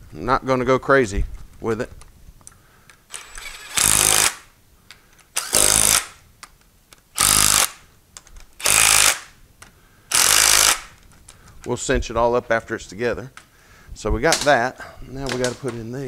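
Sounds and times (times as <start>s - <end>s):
cordless driver spinning screws: 3.1s - 4.4s, 5.4s - 6.2s, 7.2s - 7.8s, 8.6s - 9.3s, 10.1s - 11.0s.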